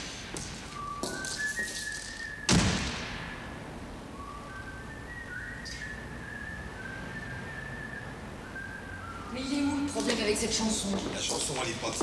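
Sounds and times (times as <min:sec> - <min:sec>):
man whistling a slow tune: 0:00.6 - 0:02.6, 0:04.1 - 0:09.5.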